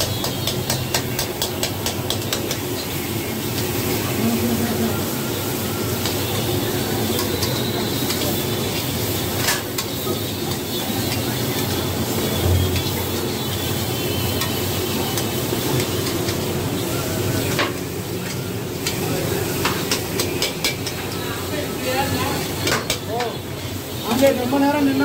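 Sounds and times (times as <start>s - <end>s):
onions sizzling in a pan: 0.0s - 25.0s.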